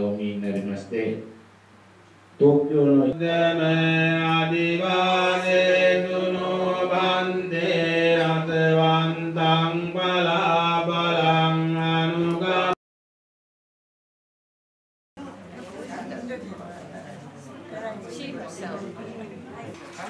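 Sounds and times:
devotional chanting: 0:02.4 - 0:12.8.

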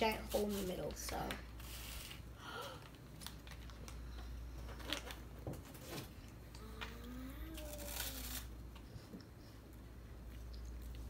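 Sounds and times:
child humming: 0:06.6 - 0:08.2.

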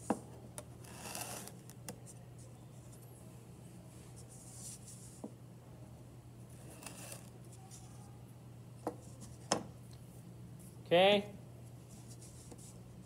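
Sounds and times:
wire cutter scraping clay: 0:00.6 - 0:01.8, 0:06.6 - 0:07.4.

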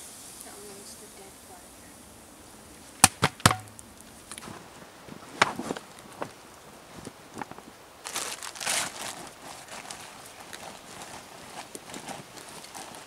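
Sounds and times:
plastic bag crinkling: 0:08.0 - 0:13.0.

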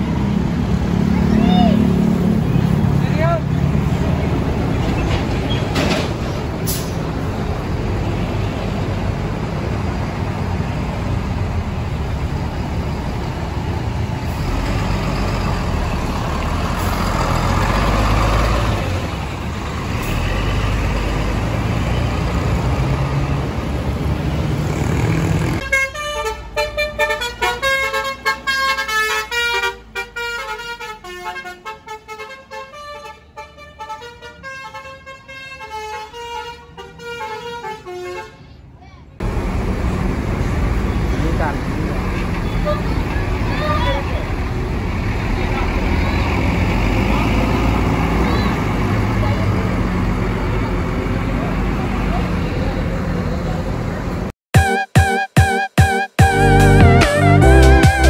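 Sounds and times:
bus diesel engine running: 0:00.0 - 0:54.4
road noise: 0:00.0 - 0:54.4, 0:56.3 - 0:58.0
musical bus horn melody: 0:25.6 - 0:38.4, 0:54.5 - 0:58.0.

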